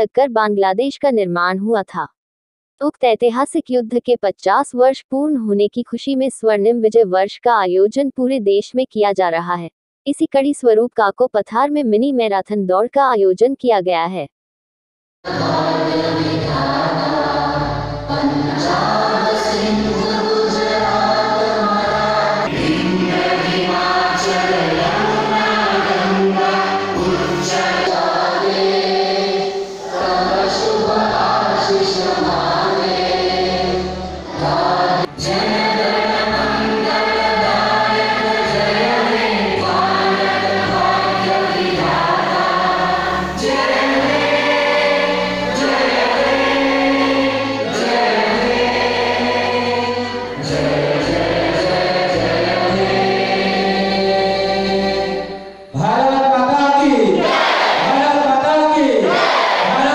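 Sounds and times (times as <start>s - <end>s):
musical accompaniment with bass: 15.3s - 55.8s
choir singing: 15.3s - 59.9s.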